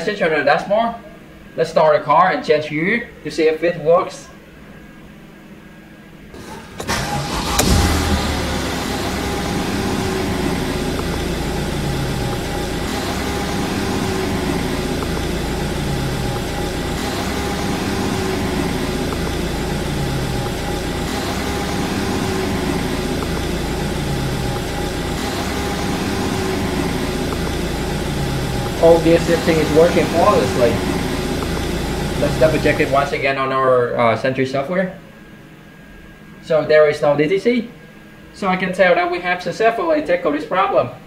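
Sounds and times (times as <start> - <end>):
car engine idling: 6.4 - 33.4
faint low pulsing tone: 7.6 - 33.2.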